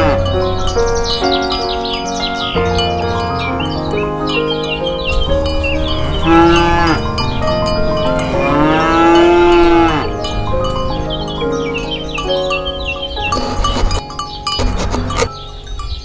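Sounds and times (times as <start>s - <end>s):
background music with bell tones: 0.0s - 16.0s
moo-like animal calls: 5.9s - 11.1s.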